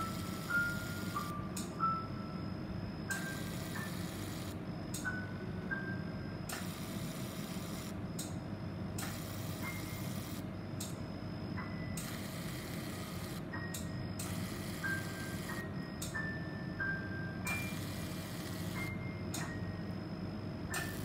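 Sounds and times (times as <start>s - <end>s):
laser machine hissing: 3.2s - 4.6s, 6.5s - 8.0s, 9.0s - 10.5s, 12.0s - 13.5s, 14.2s - 15.6s, 17.5s - 18.9s, 20.8s - 21.0s.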